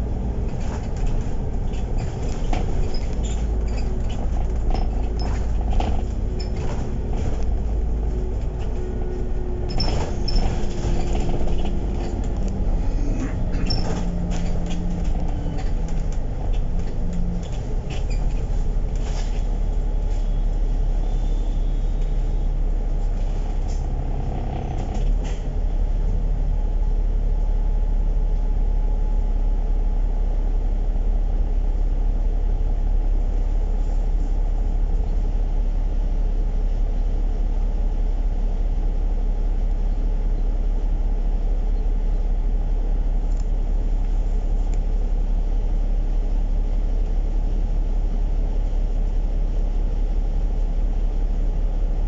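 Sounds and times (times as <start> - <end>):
bodywork rattles and knocks: 0.0 - 19.9
bus engine and road rumble: 0.0 - 52.0.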